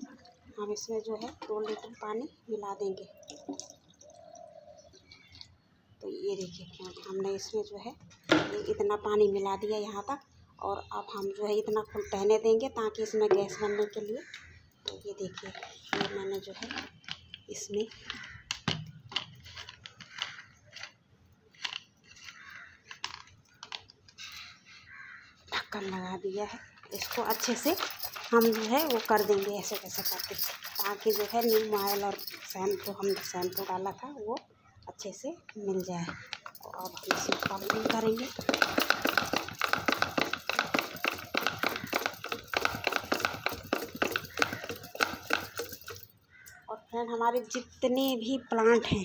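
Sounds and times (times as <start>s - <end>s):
plastic clicks and scrapes: 15.4s - 24.6s
plastic bottle shaken rattling: 26.8s - 33.8s, 36.2s - 46.1s.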